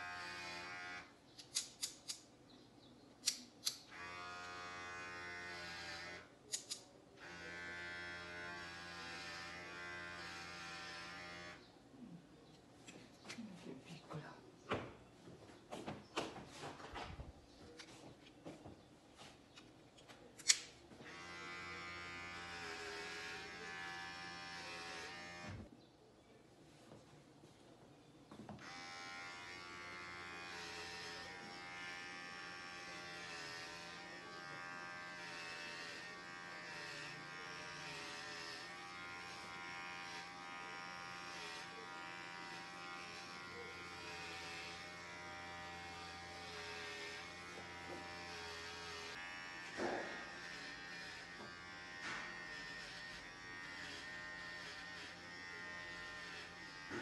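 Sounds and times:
electric hair clippers buzzing: 0.0 - 1.1, 3.8 - 6.3, 7.2 - 11.6, 21.0 - 25.6, 28.6 - 57.0.

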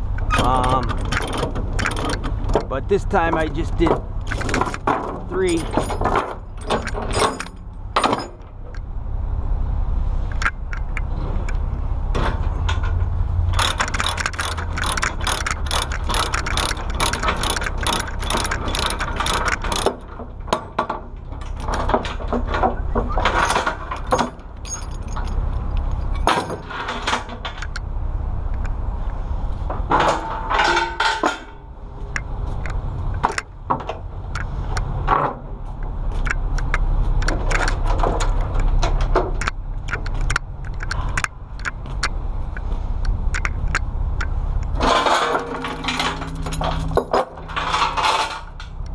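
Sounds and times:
steel chains clanking: 0.0 - 8.7, 12.5 - 27.9, 29.9 - 31.7, 36.2 - 41.8, 44.6 - 48.9.

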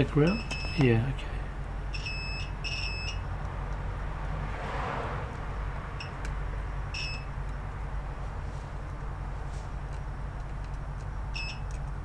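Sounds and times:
multimeter short high beeps: 0.3 - 0.9, 1.9 - 3.2, 6.9 - 7.3, 11.3 - 11.6.

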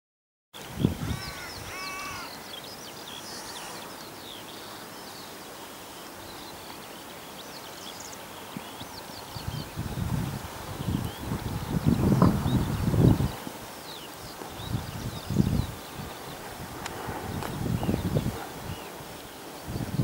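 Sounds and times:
songbirds chirping: 0.6 - 20.0
steady outdoor hiss: 0.6 - 20.0
crow cawing: 1.0 - 2.4.

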